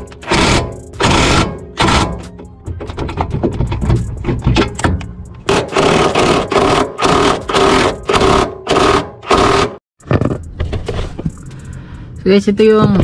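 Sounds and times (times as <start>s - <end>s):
impact wrench hammering: 0.0s - 9.8s.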